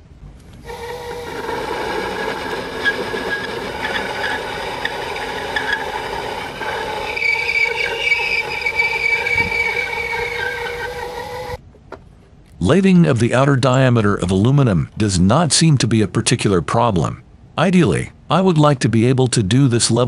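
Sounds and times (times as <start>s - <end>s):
cutting squeal: 0.6s - 11.6s
lathe motor whine: 0.6s - 11.6s.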